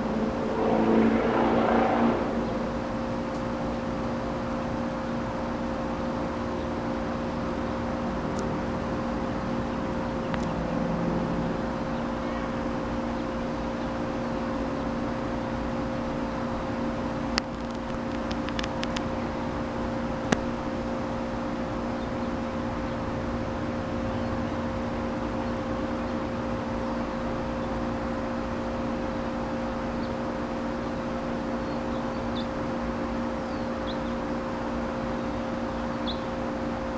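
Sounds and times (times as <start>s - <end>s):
honey bee swarm buzzing: 0.0s - 21.2s.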